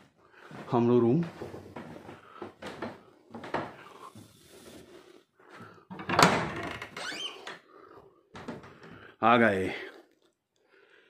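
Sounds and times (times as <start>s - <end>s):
door squeak: 6.0s - 7.6s.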